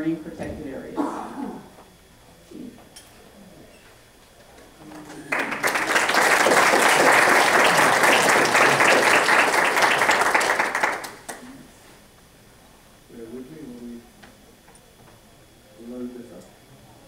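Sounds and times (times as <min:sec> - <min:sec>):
audience applauding: 0:04.8 - 0:11.5.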